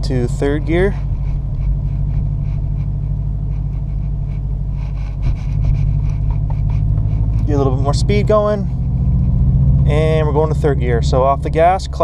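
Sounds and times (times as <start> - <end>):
car engine droning: 0.0 - 12.0.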